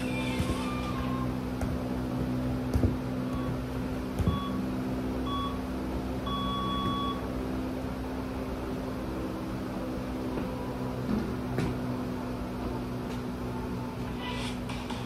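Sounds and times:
steady low hum: 0:00.0 - 0:15.0
ball knocking on floor: 0:01.5 - 0:04.6
electronic timer beeps: 0:04.2 - 0:07.2.

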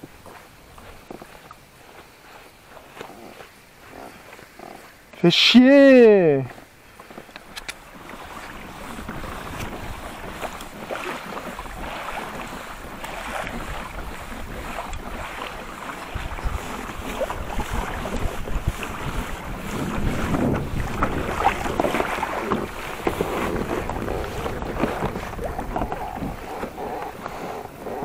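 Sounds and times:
waves lapping against hull: 0:00.0 - 0:28.0
wind on microphone: 0:07.4 - 0:28.0.

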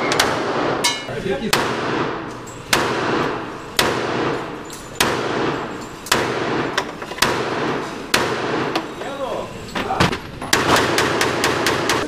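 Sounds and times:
gunshots with echo: 0:01.5 - 0:08.8, 0:10.5 - 0:12.0.

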